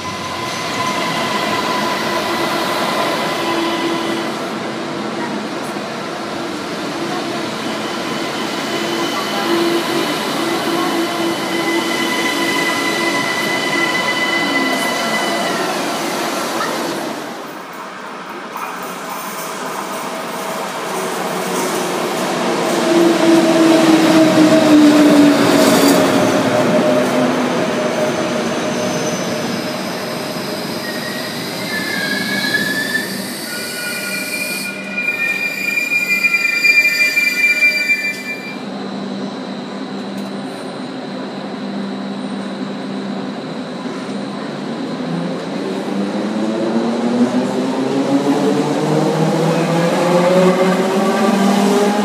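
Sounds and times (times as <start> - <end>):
train brakes squealing: 0.0 - 4.5, 7.5 - 17.2, 27.9 - 38.7.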